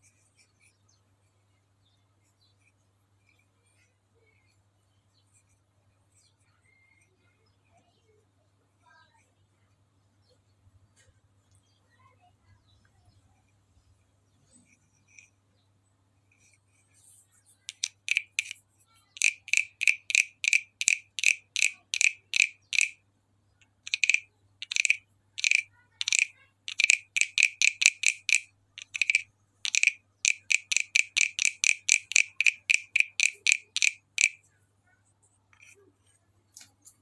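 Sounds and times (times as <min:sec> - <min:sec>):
wooden frog guiro rasping: 0:16.3 - 0:18.6, 0:19.2 - 0:23.0, 0:23.8 - 0:34.4.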